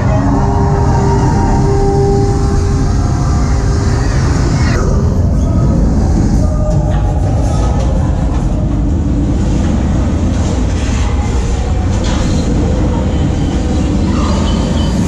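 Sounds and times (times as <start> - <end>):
rumbling rush of flight: 0.0 - 11.9.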